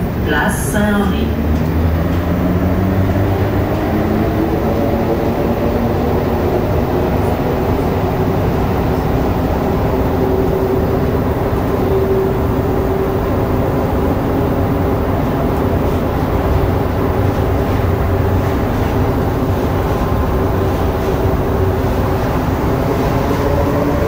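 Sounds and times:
train rumbling through tunnel: 0.0s - 24.0s.

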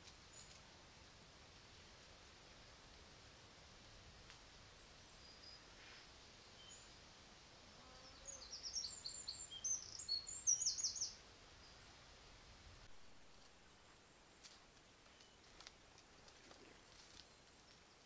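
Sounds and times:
steady faint hiss: 0.0s - 18.0s
songbird singing: 4.7s - 7.1s, 7.8s - 12.4s, 13.2s - 18.0s.

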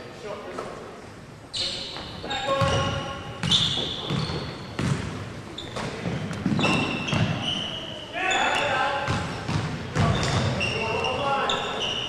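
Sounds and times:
shoes squeaking on court: 1.5s - 12.0s
basketball bouncing: 2.3s - 7.4s, 9.0s - 10.6s.

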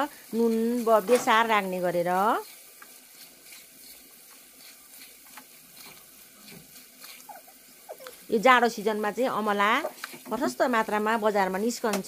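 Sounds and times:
faint sizzling of frying: 0.0s - 12.0s
spatula scraping and tapping: 2.4s - 7.3s.

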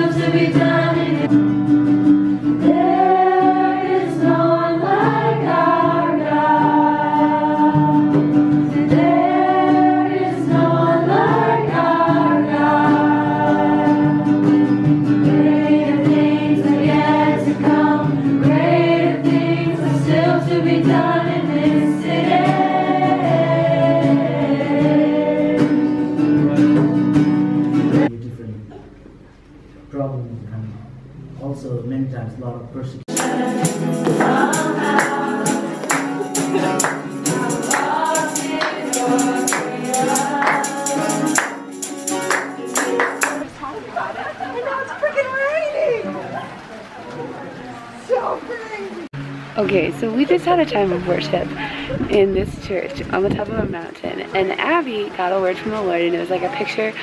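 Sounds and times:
group singing a worship song: 0.0s - 1.4s, 2.4s - 26.4s, 33.1s - 43.5s
acoustic guitar: 0.0s - 32.3s, 33.1s - 57.0s.

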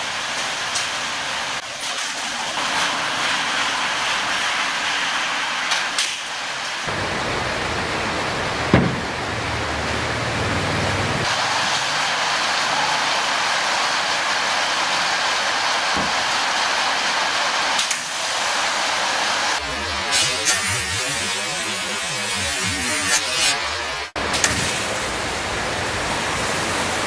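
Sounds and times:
loud steady hiss: 0.0s - 19.6s, 24.2s - 27.0s
sharp knocks: 8.7s - 9.2s.

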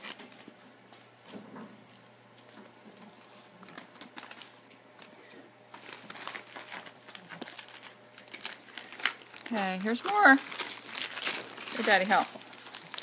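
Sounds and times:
wrapping paper crinkling: 0.0s - 1.1s, 3.6s - 5.1s, 5.7s - 13.0s.

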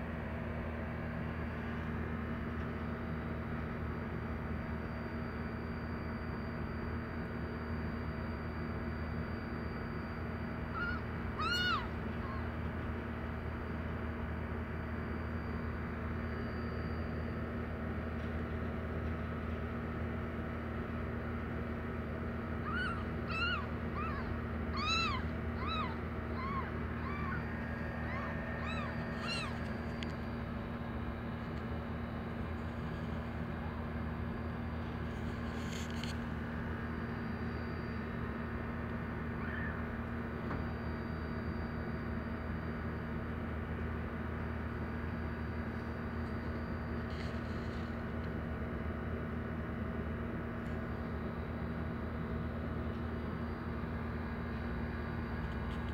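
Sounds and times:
steady low hum: 0.0s - 55.9s
kittens mewing: 10.8s - 12.6s, 22.6s - 30.0s.

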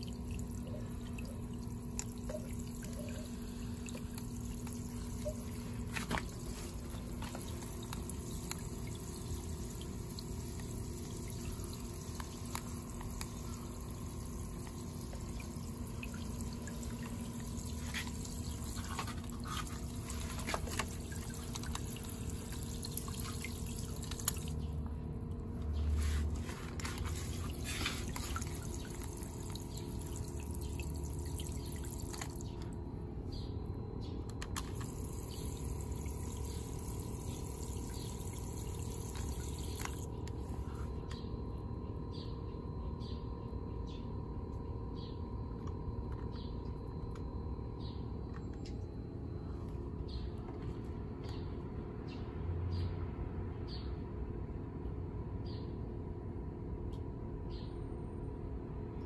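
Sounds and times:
sprinkler water pattering on pond: 0.0s - 24.7s, 26.8s - 32.6s, 34.6s - 40.6s
small water drips: 0.0s - 32.8s, 34.4s - 41.2s.

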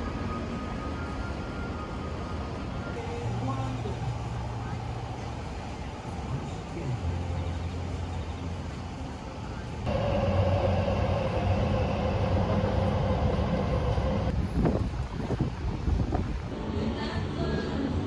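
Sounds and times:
mechanical hum with held tone: 0.0s - 14.3s
city traffic rumble: 0.0s - 18.0s.

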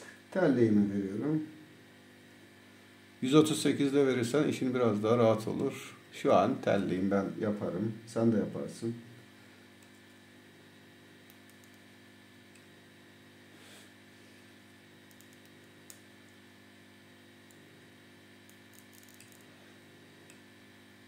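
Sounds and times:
faint electrical hum: 0.0s - 21.0s
soft clicks: 11.2s - 11.8s, 15.1s - 16.0s.

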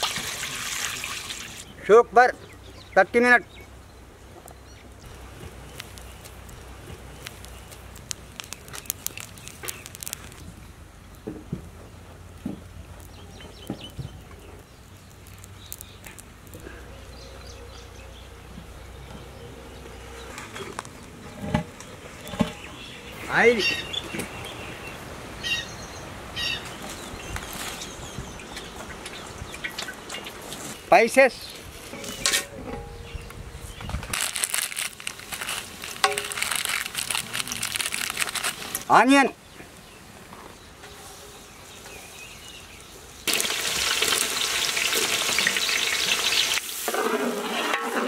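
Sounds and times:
wood fire crackling: 2.8s - 17.6s, 34.0s - 40.6s, 41.6s - 48.0s
spices sizzling in hot oil: 5.1s - 10.4s, 14.7s - 16.5s, 34.3s - 38.8s, 43.2s - 48.0s
small clicks and pops: 5.7s - 10.4s, 14.6s - 16.6s.

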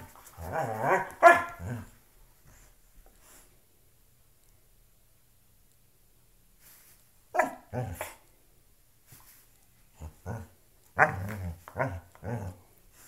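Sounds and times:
dog growly barks: 0.4s - 1.9s, 7.4s - 8.2s, 10.0s - 12.6s.

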